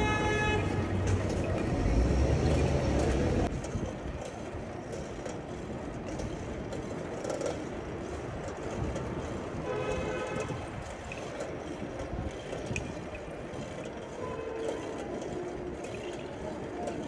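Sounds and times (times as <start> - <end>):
heavy vehicle rumbling past: 0.0 - 3.5
traffic noise: 0.0 - 17.0.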